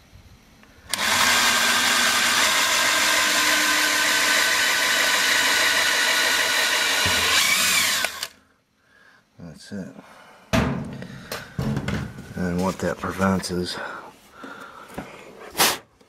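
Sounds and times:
power drill drilling: 0.9 - 8.4.

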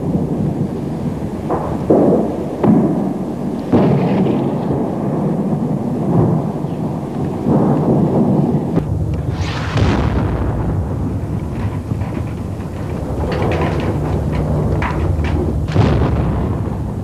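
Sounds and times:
artillery booms: 0.0 - 17.0
low rumbling: 0.0 - 17.0
sharp bright blast: 9.2 - 11.3.

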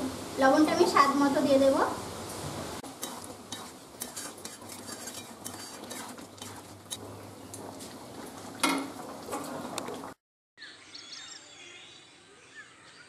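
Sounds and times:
metal spatula scraping pan: 2.9 - 7.1
knock on pan: 8.6 - 9.0.

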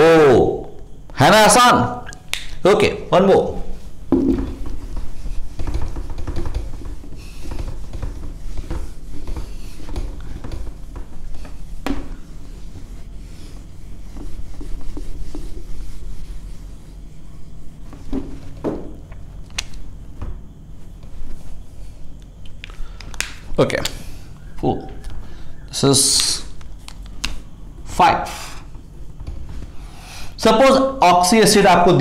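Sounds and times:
eraser wiping whiteboard: 3.6 - 19.0
sharp knocks: 4.1 - 12.2.

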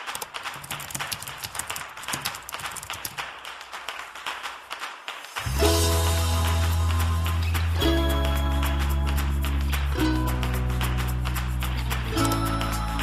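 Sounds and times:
typing on keyboard: 0.0 - 3.3, 12.0 - 13.0.

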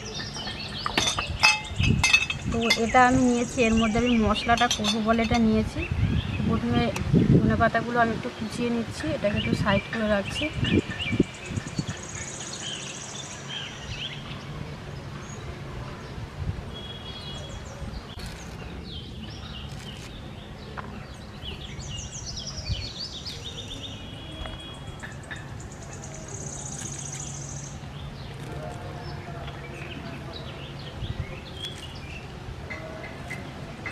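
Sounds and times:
birds trilling and chirping: 0.0 - 33.9
soft cuts of herbs slicing: 18.1 - 21.0, 28.3 - 29.6, 31.5 - 32.2.

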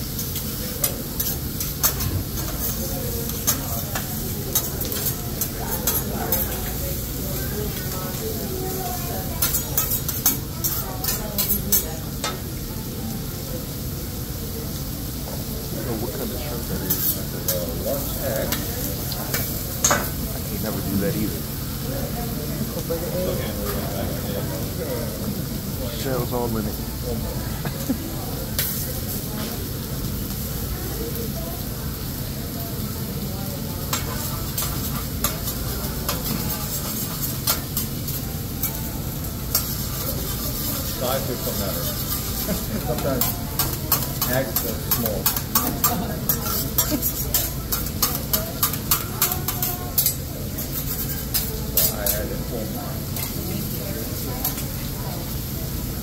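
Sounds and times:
utensils clacking on griddle: 0.0 - 12.5, 16.7 - 20.8, 27.7 - 30.4, 33.7 - 54.9
food sizzling on a grill: 0.0 - 56.0
metal spatula striking griddle: 33.9 - 38.8, 39.5 - 52.2.

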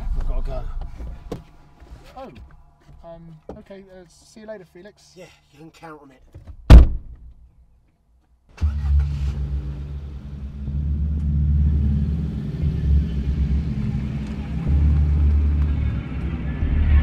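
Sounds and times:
car engine starting and idling: 8.5 - 17.0.

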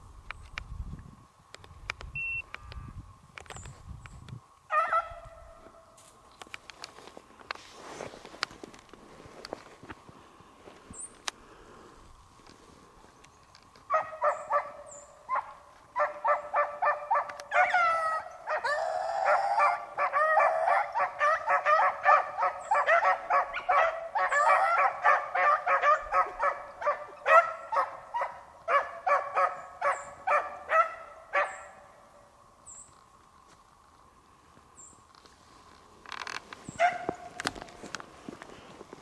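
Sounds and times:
hounds barking: 4.7 - 5.7, 13.9 - 32.0, 36.7 - 37.7
hounds baying: 13.9 - 31.9, 36.8 - 37.8.

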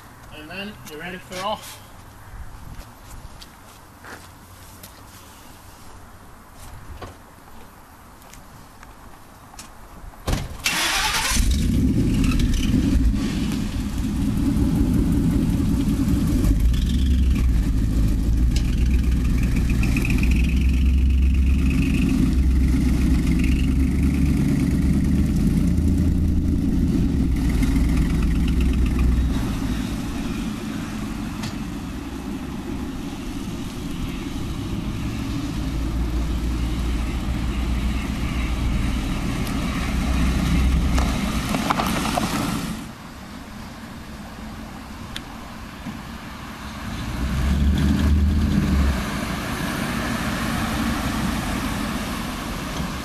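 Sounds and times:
truck engine running: 10.8 - 42.8.

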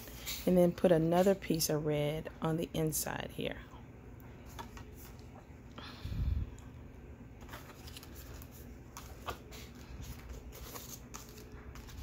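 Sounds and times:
paper cards rustling: 7.4 - 12.0.

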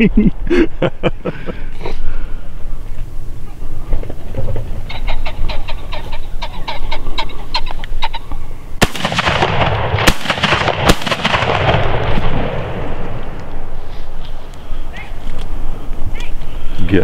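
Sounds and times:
pheasant cackling: 2.7 - 8.7
echoing shotgun shots: 8.8 - 13.8.

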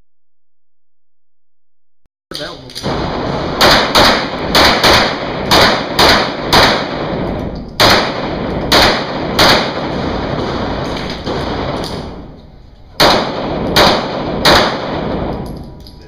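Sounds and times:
pistol shots echoing indoors: 2.8 - 16.0.

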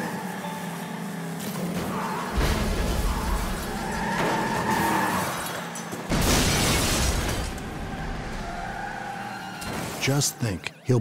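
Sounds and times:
car crash with breaking glass: 2.3 - 7.8, 9.6 - 10.1.

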